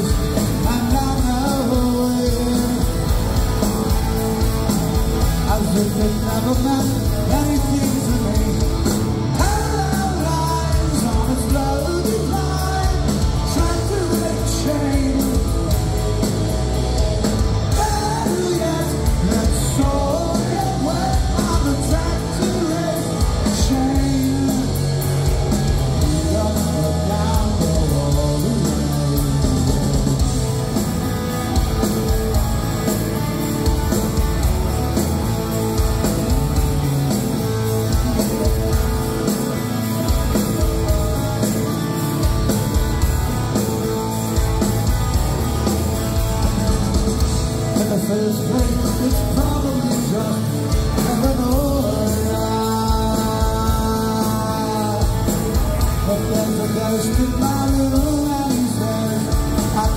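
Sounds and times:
person singing: 0.0s - 3.4s, 5.4s - 15.8s, 17.7s - 25.1s, 47.7s - 59.9s
rock band playing live: 0.0s - 59.9s.

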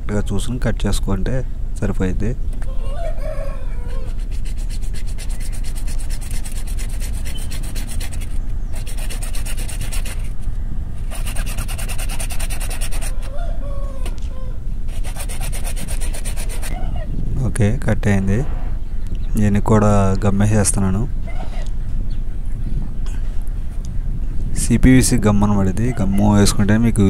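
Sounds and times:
hacksaw cutting plastic pipe: 4.5s - 10.3s, 11.1s - 13.2s, 14.9s - 16.8s.

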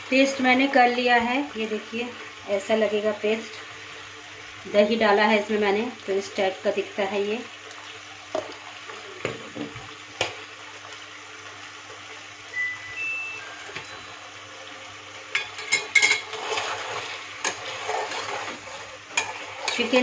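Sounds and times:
chicken sizzling in oil: 0.0s - 20.0s
metal spoon scraping a pot: 15.4s - 20.0s.

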